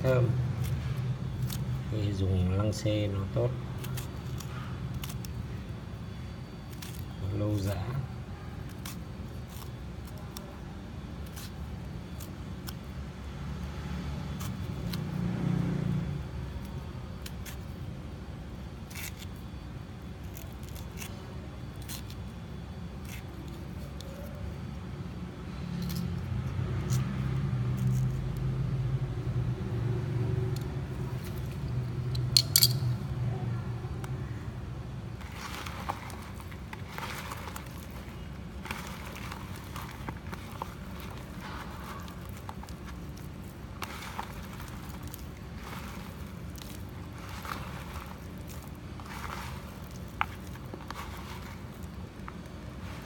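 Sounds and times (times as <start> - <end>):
knife blade clicking through peel: 32.1 - 32.9.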